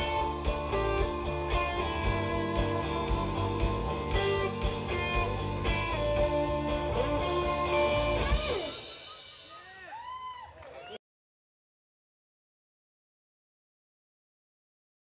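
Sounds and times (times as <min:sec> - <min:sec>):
band music with guitar: 0:00.0 - 0:09.7.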